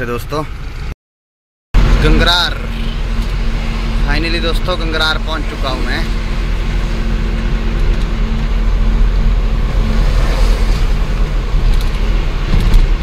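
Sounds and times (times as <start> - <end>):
diesel engine drone: 0.0 - 1.0, 1.8 - 13.0
road rumble: 0.0 - 1.0, 1.8 - 13.0.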